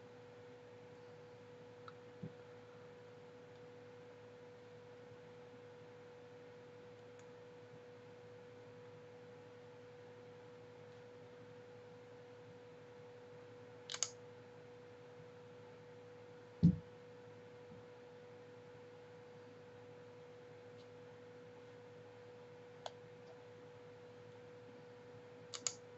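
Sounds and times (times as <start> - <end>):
faint steady hum: 0.0 - 25.9
dull thump: 16.6 - 16.8
sharp double click: 25.5 - 25.8.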